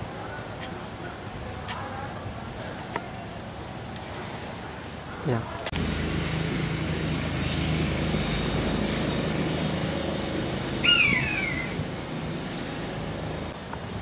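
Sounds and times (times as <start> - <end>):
low motor hum: 5.8 - 13.6
loud falling animal call: 10.8 - 11.9.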